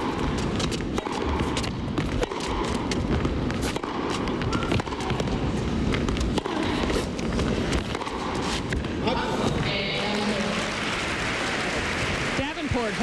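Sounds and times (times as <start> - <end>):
racquet striking tennis ball: 0.0 - 9.7
footsteps on court: 0.0 - 9.8.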